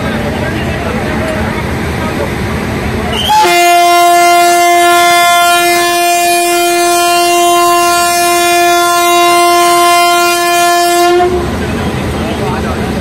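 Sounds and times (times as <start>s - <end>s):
locomotive horn blast: 3.1s - 11.8s.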